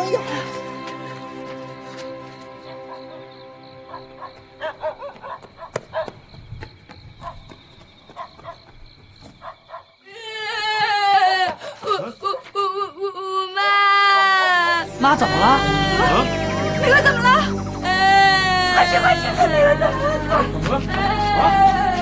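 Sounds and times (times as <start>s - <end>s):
dog barking: 3.9s - 6.2s, 7.2s - 7.4s, 9.4s - 9.9s
high-pitched wailing cry: 12.2s - 22.0s.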